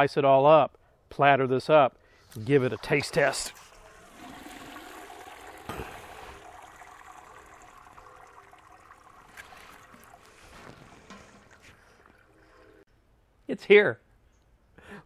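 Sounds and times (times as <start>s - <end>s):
liquid pouring through strainer: 2.6s - 12.8s.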